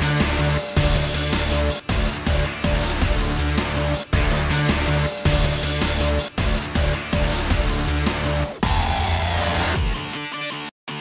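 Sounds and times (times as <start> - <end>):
loud music with steady beat: 0.0 - 10.6.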